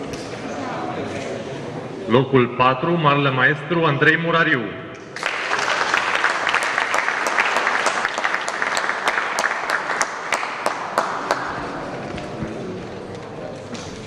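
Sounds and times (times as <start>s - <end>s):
audience applauding: 5.2s - 12.8s.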